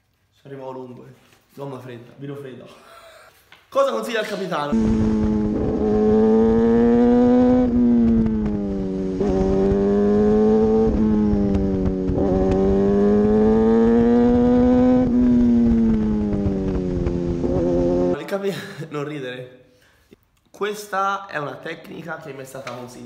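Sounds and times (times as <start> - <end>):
motorcycle engine accelerating: 4.8 - 18.2.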